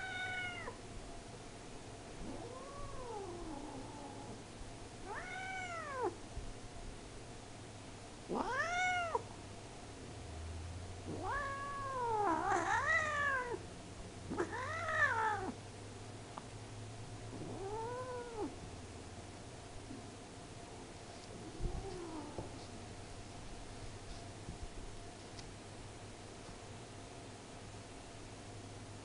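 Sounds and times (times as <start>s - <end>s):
cat meowing: 0.0s - 0.8s, 5.1s - 6.2s, 8.3s - 9.2s, 11.1s - 13.6s, 14.3s - 15.6s.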